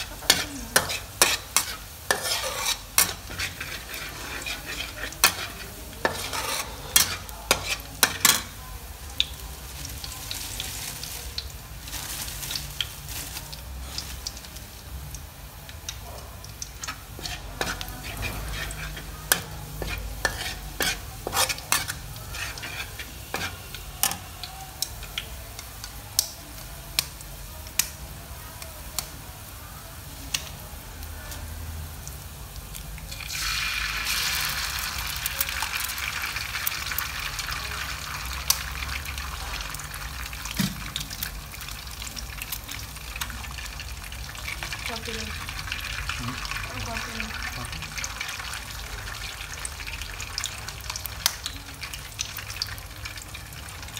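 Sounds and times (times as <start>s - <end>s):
metal spatula scraping a wok: 0.0s - 8.5s, 16.8s - 24.2s
oil sizzling: 0.0s - 53.9s.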